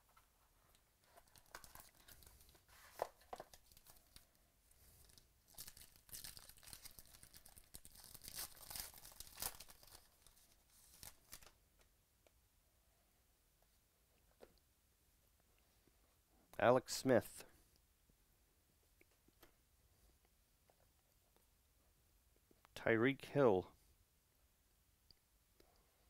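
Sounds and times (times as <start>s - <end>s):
foil wrapper tearing and crinkling: 5.1s - 11.6s.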